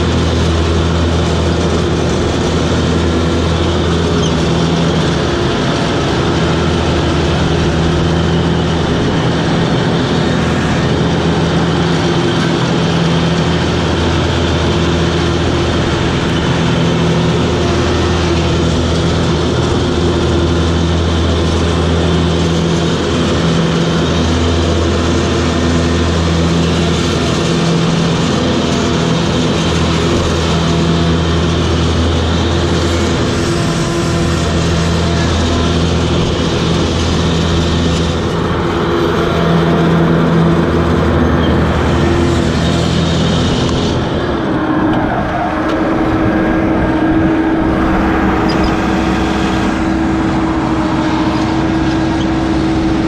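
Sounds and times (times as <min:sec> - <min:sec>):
mower engine drone: 0:00.0 - 0:53.0
even rushing noise: 0:32.7 - 0:53.0.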